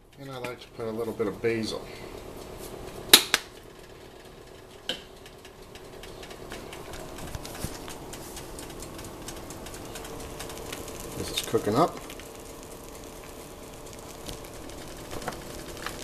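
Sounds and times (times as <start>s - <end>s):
constant hum: 0.0s - 16.0s
eggs frying crackle: 0.0s - 16.0s.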